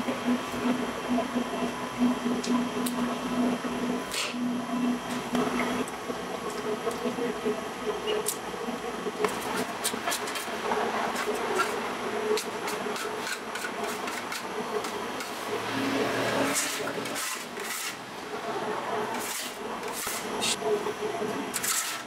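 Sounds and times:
steady machine hum: 0.0 - 22.0
dough scraper scraping steel bowl: 11.1 - 15.5, 16.2 - 18.0, 19.2 - 20.6, 21.5 - 22.0.

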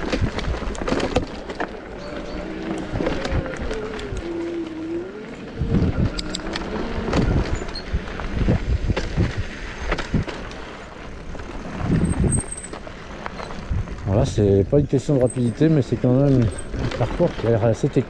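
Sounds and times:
bike knocking and rattling: 0.0 - 18.0
electric motor whine: 1.9 - 8.5.

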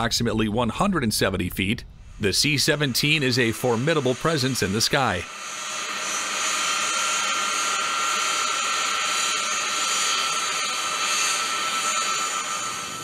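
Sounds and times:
jet flying past whining: 0.0 - 13.0
rushing noise: 0.0 - 13.0.

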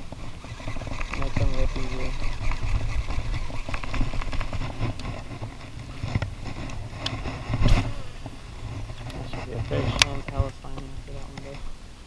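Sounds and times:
fishing reels clicking: 0.0 - 7.2
wind rumble on microphone: 0.0 - 11.9.

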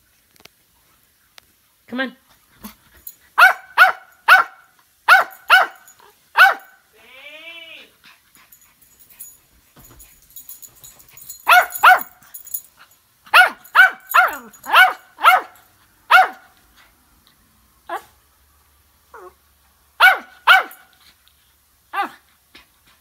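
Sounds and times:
small dog barking: 3.4 - 6.8, 11.2 - 12.4, 13.3 - 16.6, 17.9 - 18.2, 20.0 - 20.9, 21.9 - 22.2.

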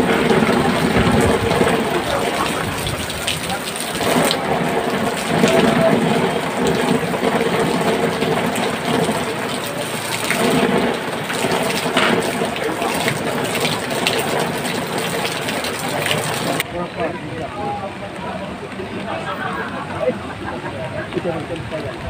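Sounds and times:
heavy rain falling: 0.0 - 22.0
people talking: 0.0 - 22.0.

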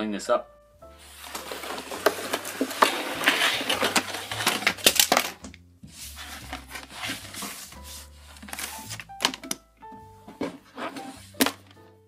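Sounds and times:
packaging crinkling: 1.0 - 5.4
plastic objects knocking: 1.2 - 5.6, 8.4 - 11.9.

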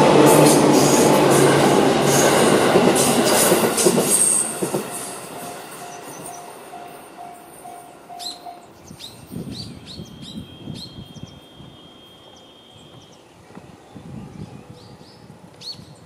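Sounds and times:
birds chirping: 5.4 - 16.0.

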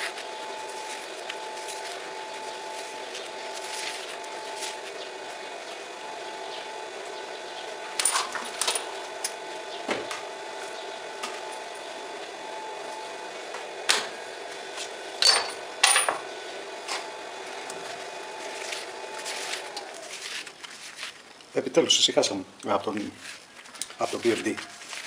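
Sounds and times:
steady mechanical drone: 0.0 - 20.6
metal tools clinking on steel plate: 15.2 - 16.2.

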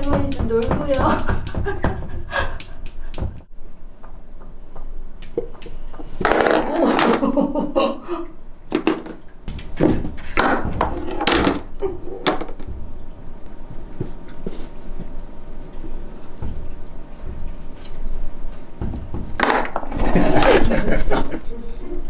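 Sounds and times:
pool balls knocking and rolling: 0.0 - 7.8, 8.6 - 21.2.

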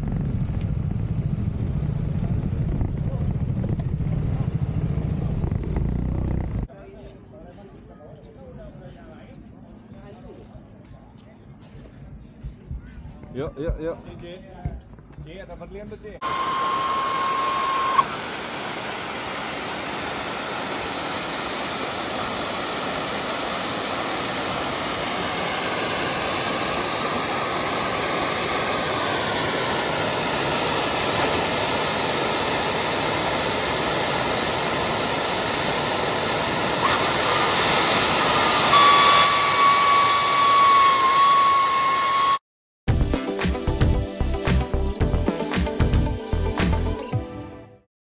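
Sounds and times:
scooter engine running: 0.0 - 2.4, 3.9 - 6.7
steady high whine: 0.0 - 6.7, 16.2 - 42.4
wind rushing on microphone: 0.0 - 6.7.

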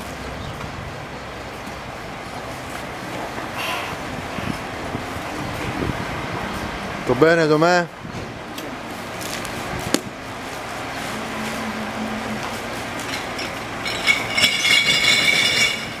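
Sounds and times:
high-pitched squeal: 10.9 - 16.0.

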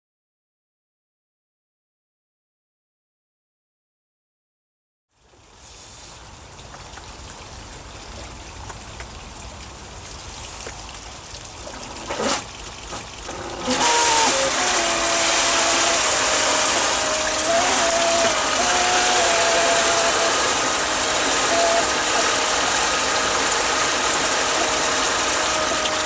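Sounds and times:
faint water sound: 5.1 - 26.0
water jetting loudly: 5.4 - 26.0
electric motor whine: 13.3 - 26.0.

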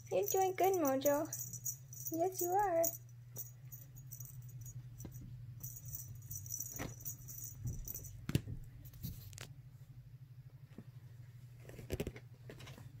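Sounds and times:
cat toy jingling and rattling: 0.0 - 8.3.

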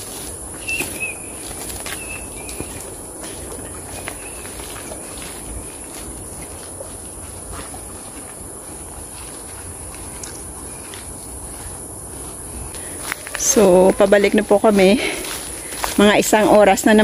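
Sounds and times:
bird chirps: 0.6 - 2.9, 3.6 - 6.0
high-pitched insect drone: 10.3 - 17.0.

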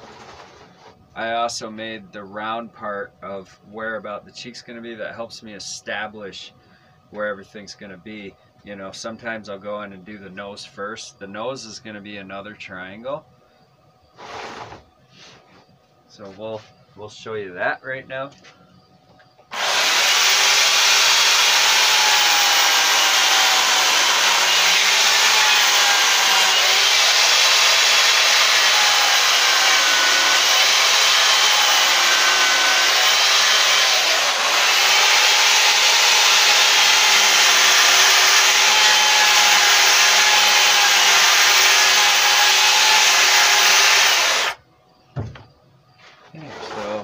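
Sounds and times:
electric chainsaw cutting wood: 14.2 - 14.8, 19.5 - 44.6.

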